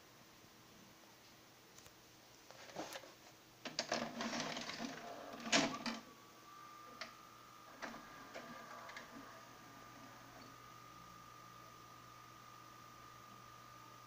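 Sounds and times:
faint steady whine: 0.0 - 14.0
tape mechanism whirring and clattering: 3.6 - 6.1, 6.9 - 10.6.

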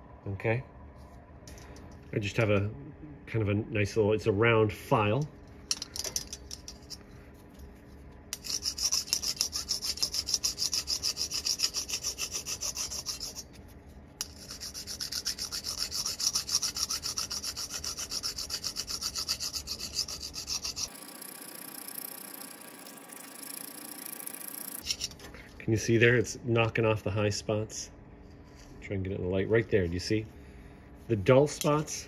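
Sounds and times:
file scraping on steel: 8.3 - 13.6, 14.2 - 21.0.

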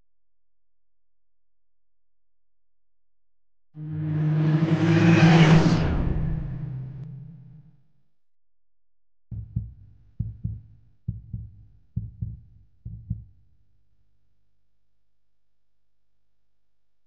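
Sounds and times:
heartbeat thumps: 9.3 - 13.4.

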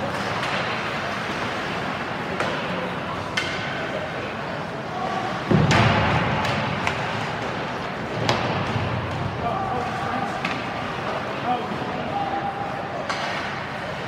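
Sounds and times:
hockey sticks clicking on puck: 0.0 - 4.0, 5.5 - 11.4, 13.0 - 14.0
murmur of spectators: 0.0 - 14.0.

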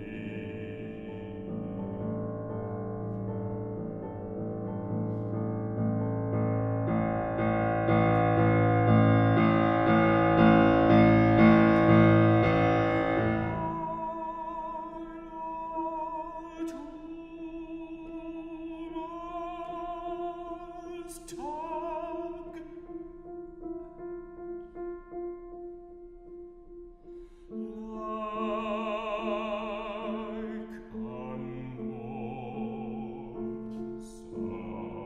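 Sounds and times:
baritone singing with vibrato: 0.0 - 2.3, 7.4 - 23.2, 27.5 - 35.0
piano chords: 0.0 - 35.0.

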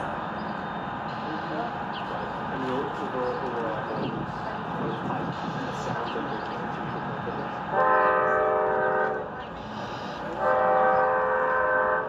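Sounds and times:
locomotive air horn blasts: 7.7 - 12.0.

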